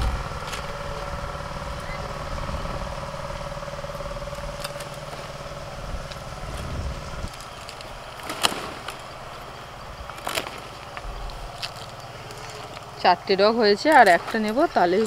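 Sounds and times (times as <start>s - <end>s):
tractor engine humming: 0.0s - 15.0s
sickle snapping through shoots: 7.3s - 9.0s, 10.1s - 12.9s.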